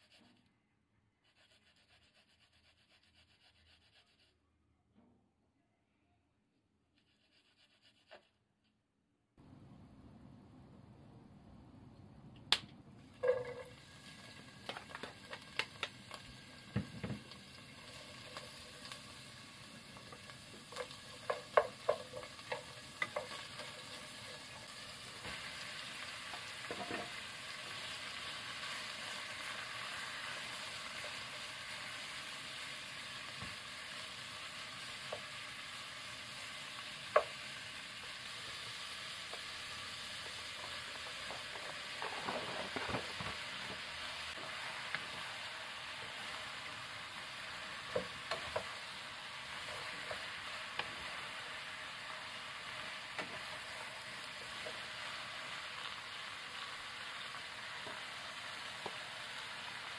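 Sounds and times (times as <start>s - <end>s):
meat sizzling in oil: 13.6s - 59.9s
clicks and knocks in pot: 20.7s - 23.4s.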